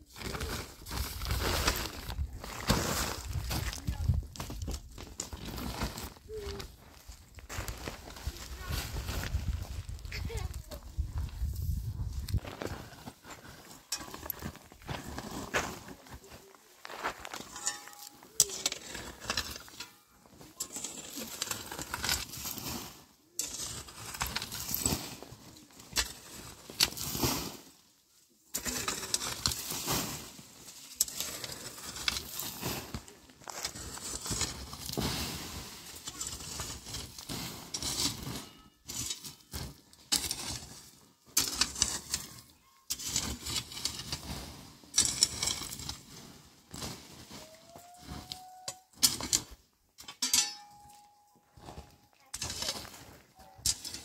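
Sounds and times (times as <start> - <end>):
metal rake scraping stony soil: 0.0 - 54.0
gravel rattling: 0.3 - 22.8.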